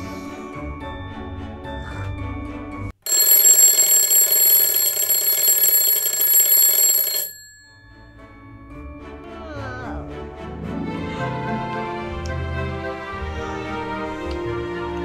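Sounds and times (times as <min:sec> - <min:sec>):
alarm clock ringing: 0:03.0 - 0:08.9
soft music: 0:07.9 - 0:15.0.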